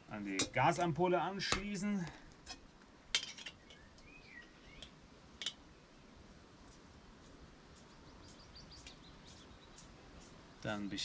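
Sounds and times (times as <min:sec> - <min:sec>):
faint bird chirps: 0:03.5 - 0:05.0, 0:07.8 - 0:10.0.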